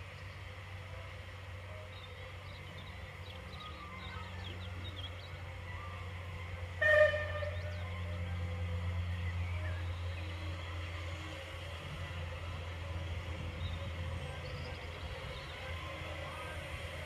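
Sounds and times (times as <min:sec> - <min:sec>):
steam locomotive rumbling: 0:00.0 - 0:17.0
locomotive whistle toot: 0:06.7 - 0:07.9.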